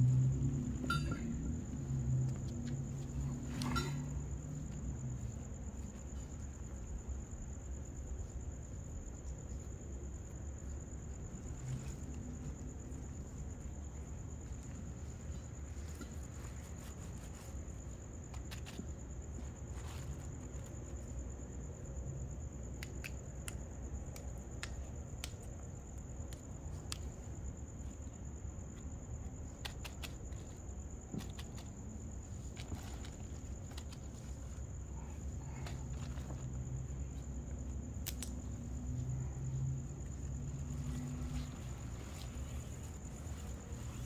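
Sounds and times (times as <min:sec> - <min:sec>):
low background rumble: 0:00.0 - 0:22.8
crickets trilling: 0:00.0 - 0:44.0.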